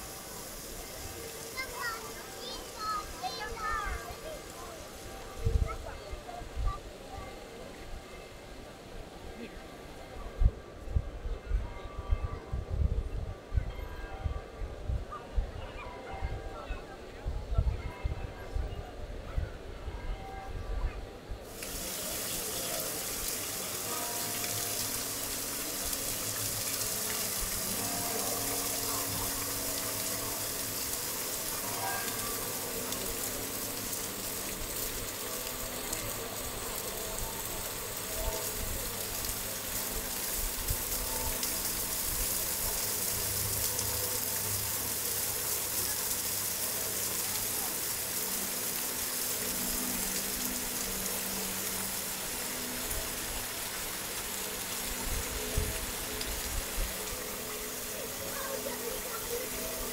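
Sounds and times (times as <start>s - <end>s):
falling splashing water: 0.0s - 6.1s, 21.4s - 59.9s
faint voices: 0.0s - 59.9s.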